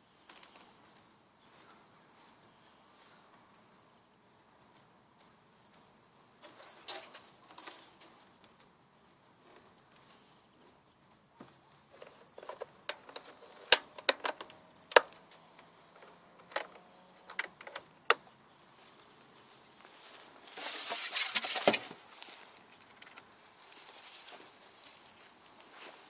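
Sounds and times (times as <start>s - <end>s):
beehive lid clicks and knocks: 12.1s - 15.2s, 16.4s - 18.2s
rustling scrape: 19.8s - 22.8s.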